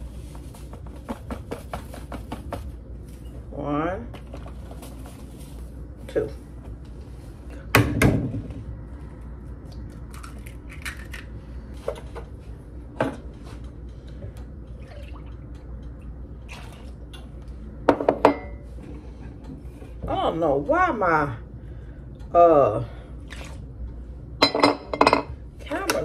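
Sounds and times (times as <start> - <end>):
liquid pouring from jug: 14.7 - 15.6.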